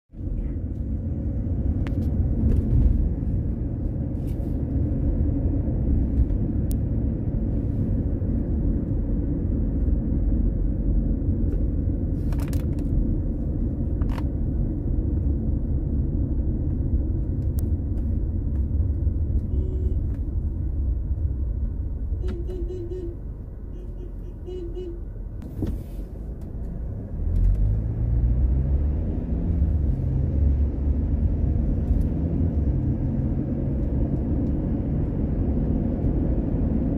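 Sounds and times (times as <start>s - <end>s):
car engine and road rumble: 0.1s - 36.9s
car engine accelerating: 25.8s - 36.9s.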